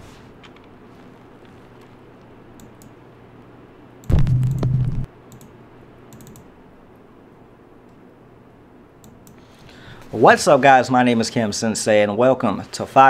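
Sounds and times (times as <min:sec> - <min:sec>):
loud low steady tone: 0:04.1 - 0:05.1.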